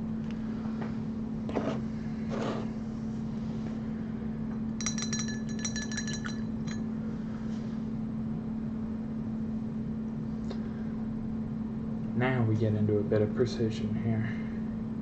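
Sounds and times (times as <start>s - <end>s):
steady low hum: 0.0s - 15.0s
glassy clinks: 4.8s - 6.9s.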